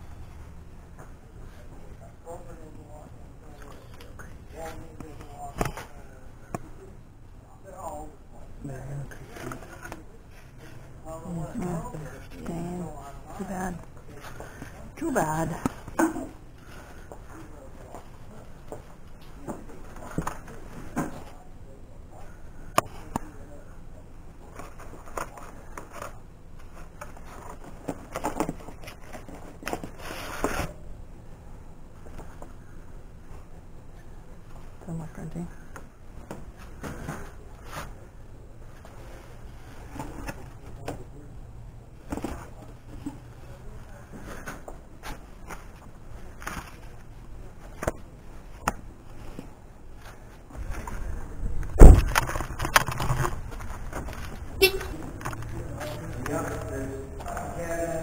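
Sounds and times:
loud thump: 51.7s - 52.2s.

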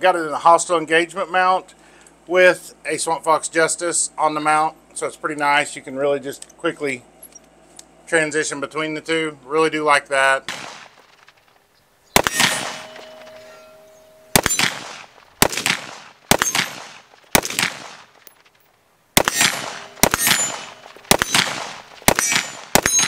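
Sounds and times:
rifle shots echoing: 10.5s - 11.3s, 12.2s - 18.2s, 19.2s - 23.0s.

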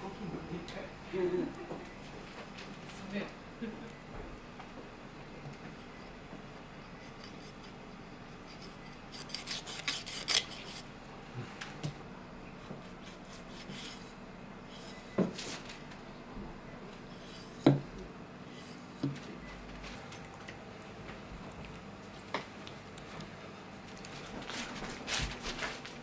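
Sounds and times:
knife scraping fish skin: 8.4s - 10.9s.

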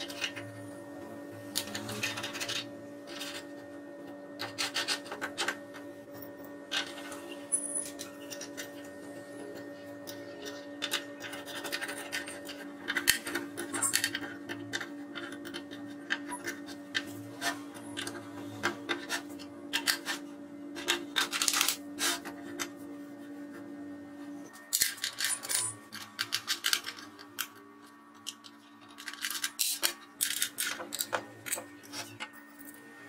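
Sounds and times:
metal tools clicking and scraping: 28.2s - 32.8s.

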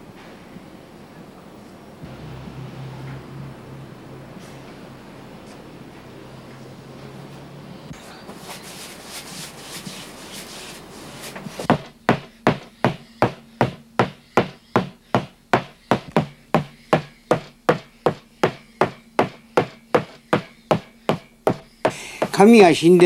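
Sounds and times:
brush beating paper: 8.4s - 22.7s.

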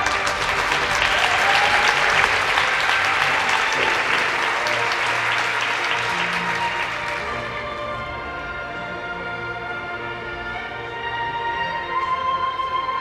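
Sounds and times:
audience applauding: 0.0s - 8.0s
music: 0.0s - 13.0s.

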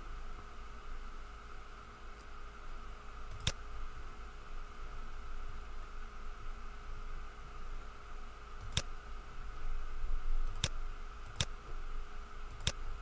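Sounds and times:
faint steady hum: 0.0s - 13.0s
mouse button clicks: 12.5s - 12.8s.

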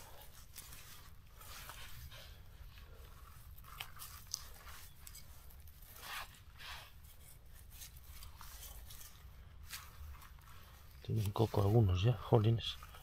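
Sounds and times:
forest litter crunching: 0.0s - 13.0s.

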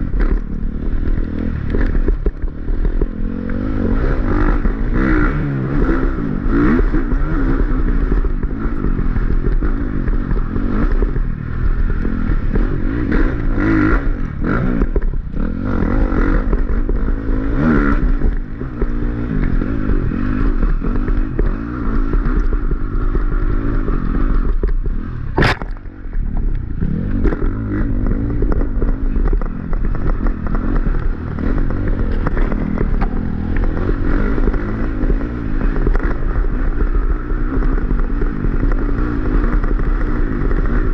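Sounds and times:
dirt bike engine revving: 0.0s - 40.9s
sharp knock: 25.4s - 25.8s.

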